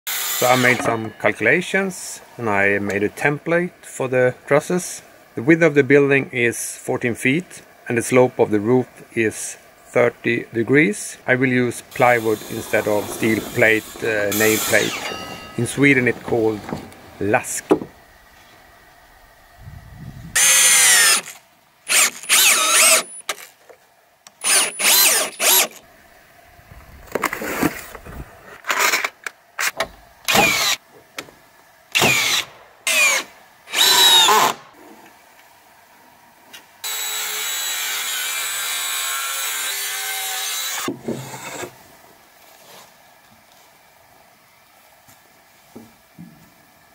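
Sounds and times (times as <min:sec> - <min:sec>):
cordless drill motor whine: 0:12.2 - 0:15.6, 0:20.4 - 0:23.2, 0:24.4 - 0:25.8, 0:30.3 - 0:30.8, 0:32.0 - 0:34.5.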